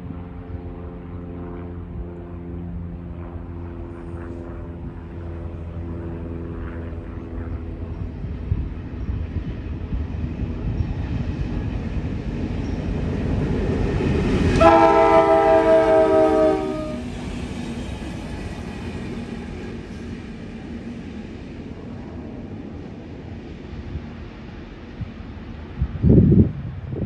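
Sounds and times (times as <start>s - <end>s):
diesel locomotive rumbling: 7.7s - 27.0s
locomotive horn chord: 14.6s - 17.2s.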